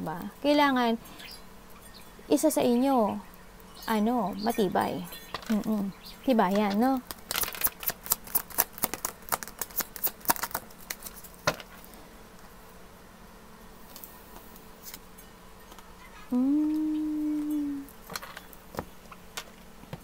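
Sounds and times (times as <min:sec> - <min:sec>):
cards being shuffled: 0:06.5 - 0:11.6.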